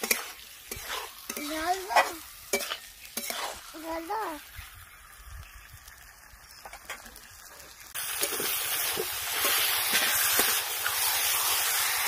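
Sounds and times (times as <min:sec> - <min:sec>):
metal spatula scraping pan: 0:00.0 - 0:03.9
chicken sizzling in spice paste: 0:00.0 - 0:12.0.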